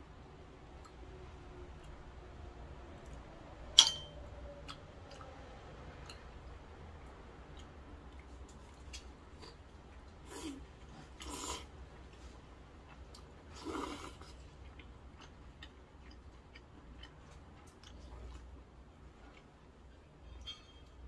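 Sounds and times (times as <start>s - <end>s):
soft chewing: 0.6s - 3.4s, 4.4s - 21.0s
person slurping noodles: 10.2s - 11.7s, 13.5s - 14.3s.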